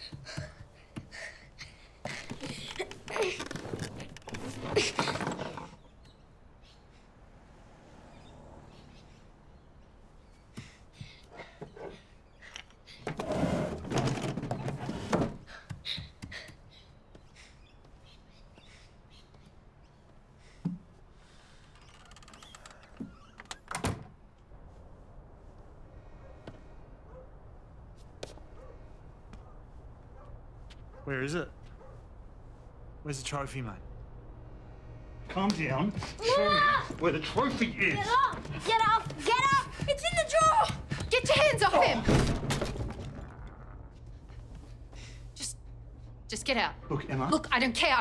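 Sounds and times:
door banging shut: 41.4 - 43.5.

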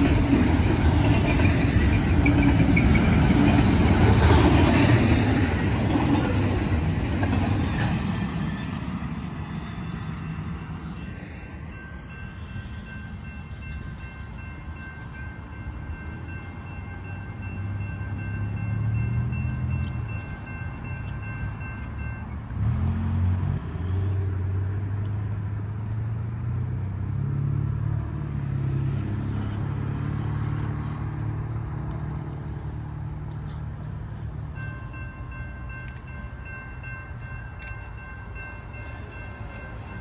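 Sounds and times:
railroad crossing bell ringing: 0.0 - 23.0, 34.4 - 40.0
vehicles driving over crossing: 0.0 - 40.0.

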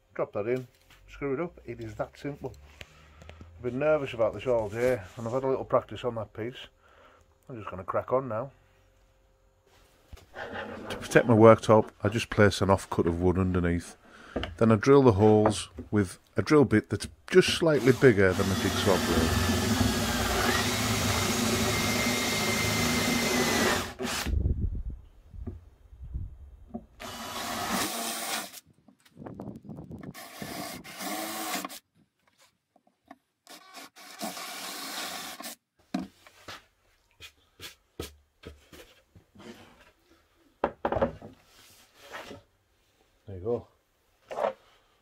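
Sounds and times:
cordless drill boring through wood: 17.7 - 24.3, 27.0 - 28.6, 30.1 - 31.8, 33.5 - 35.6
knocks and rubs of board handled: 35.9 - 40.0.

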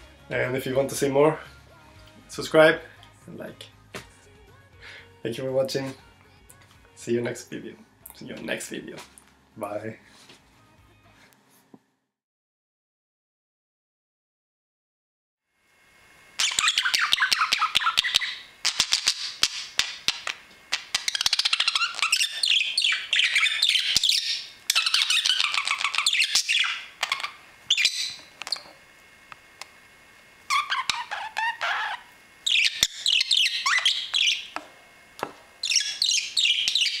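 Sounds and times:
parakeets chattering: 16.4 - 28.7, 30.5 - 34.6, 35.6 - 37.0.

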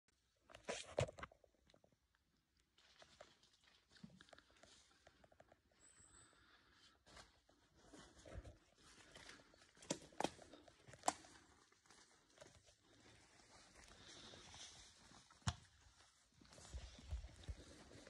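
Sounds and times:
footsteps on dry leaves and twigs: 6.4 - 18.0.

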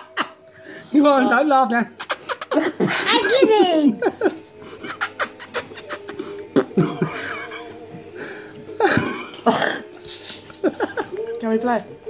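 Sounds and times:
stifled laughter: 2.0 - 7.9, 8.8 - 11.3.

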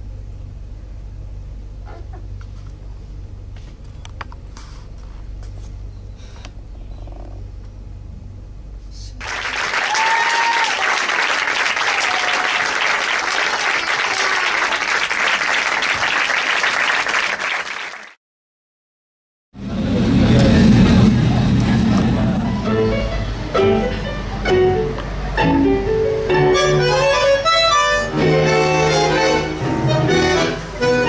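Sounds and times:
low steady hum: 0.0 - 9.4
audience applause: 9.2 - 18.2.

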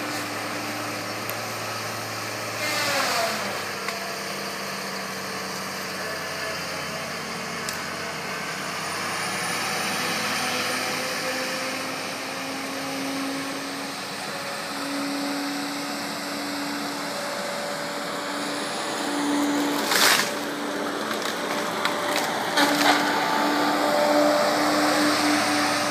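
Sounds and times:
diesel engine running under load: 0.0 - 25.9
wood cracking and snapping: 19.6 - 23.1.

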